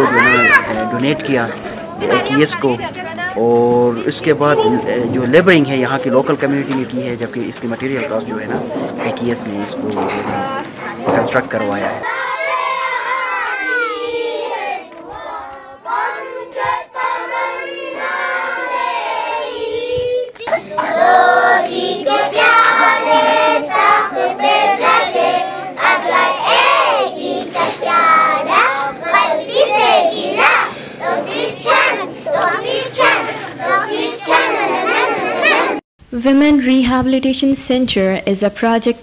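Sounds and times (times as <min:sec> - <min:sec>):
children singing together: 0:12.0 - 0:35.8.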